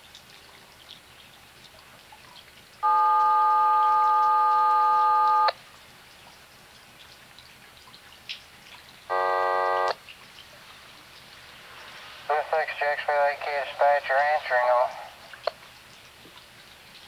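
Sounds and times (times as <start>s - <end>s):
short buzzy tone: 9.1s - 10.0s.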